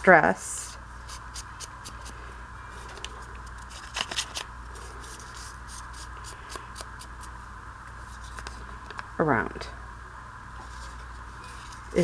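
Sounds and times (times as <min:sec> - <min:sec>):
steady hum and hiss: 0:00.0 - 0:12.0
paper rustling and crinkling: 0:02.8 - 0:05.9.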